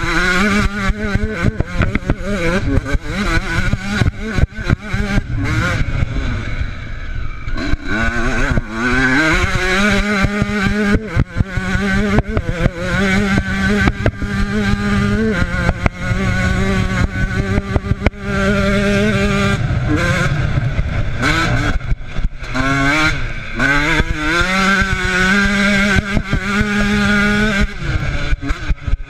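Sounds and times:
motorcycle engine revving: 0.0 - 29.0.

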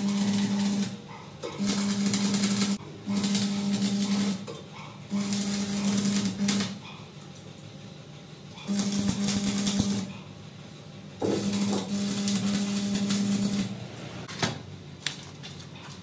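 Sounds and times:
arc welding crackling hiss: 0.0 - 1.0, 1.6 - 4.5, 5.1 - 6.8, 8.6 - 10.1, 11.2 - 14.2
steady electrical buzz: 0.0 - 15.3.

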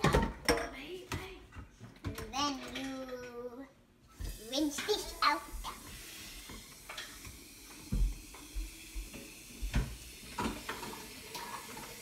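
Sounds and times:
faint steady water hiss: 3.5 - 12.0.

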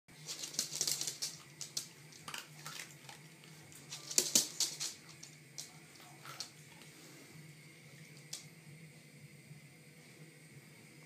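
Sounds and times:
dog claws clicking on floor: 0.2 - 6.9.

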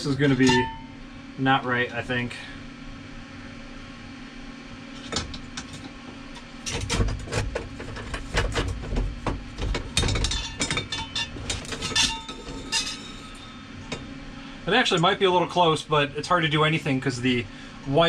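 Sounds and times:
metal tube knocking and rattling: 6.7 - 13.2.

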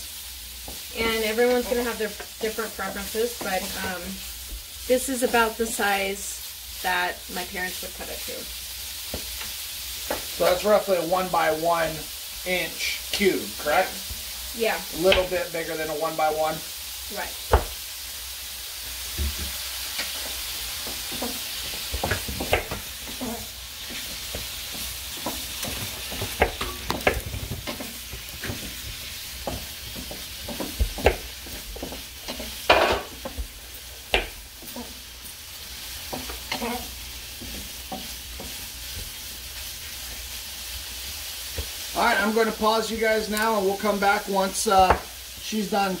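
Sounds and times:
meat sizzling in a frying pan: 0.0 - 46.0
wooden spatula stirring in pan: 0.5 - 10.5, 18.9 - 45.6.

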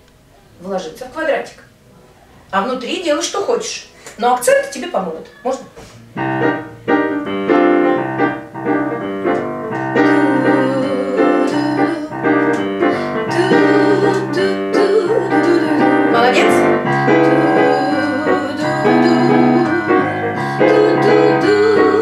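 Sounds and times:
piano playing jazz chords: 6.0 - 22.0
woman scat singing: 13.1 - 22.0.

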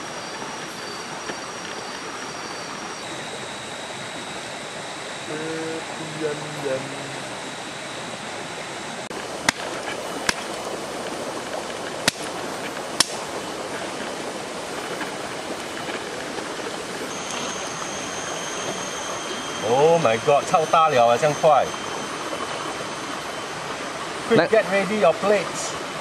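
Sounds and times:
campfire hissing: 0.0 - 26.0
fire crackling pops: 9.1 - 17.4.

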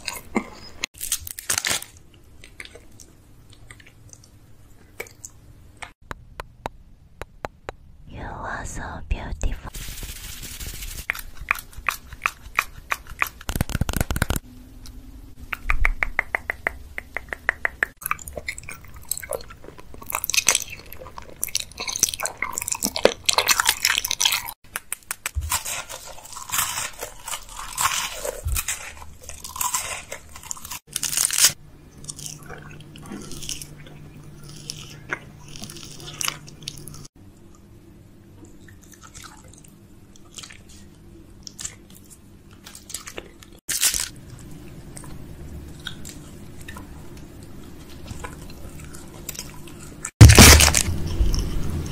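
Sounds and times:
crisp food being crunched: 1.0 - 3.1, 9.7 - 14.4, 19.1 - 37.1, 41.4 - 44.5, 50.2 - 51.8.

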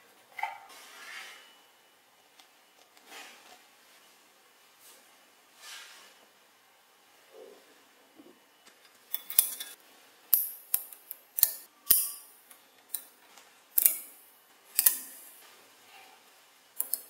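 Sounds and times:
magnetic balls clicking: 16.8 - 17.0.

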